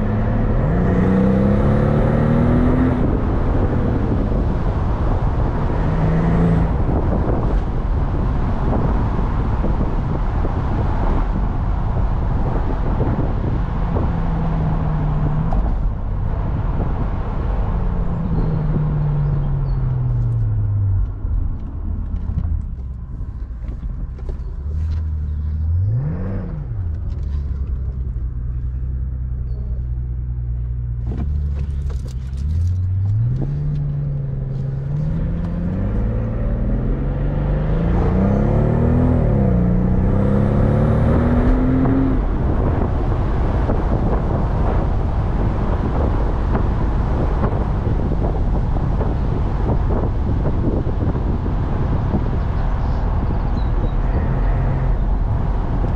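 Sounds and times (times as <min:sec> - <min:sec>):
car engine running: 0:00.0 - 0:55.9
road noise: 0:00.0 - 0:55.9.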